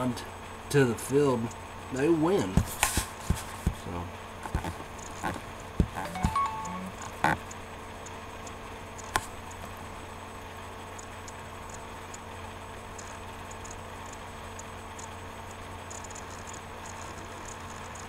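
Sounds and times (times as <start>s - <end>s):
faint light ticking: 10.9s - 12.3s.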